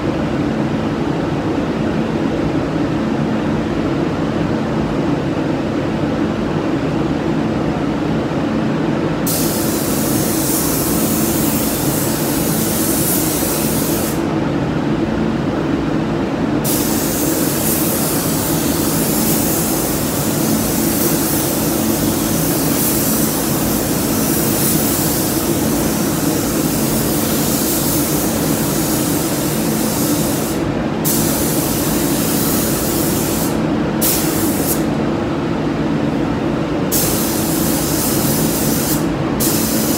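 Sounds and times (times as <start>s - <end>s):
steady low hum: 0.0s - 39.9s
paint spray gun hissing: 9.3s - 14.3s, 16.6s - 34.9s, 36.9s - 39.9s.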